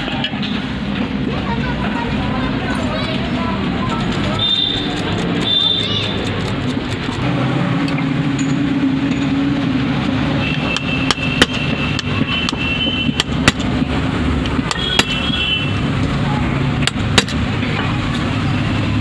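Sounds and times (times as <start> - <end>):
street traffic rumble: 0.0 - 19.0
tool clicking on metal: 3.9 - 7.2.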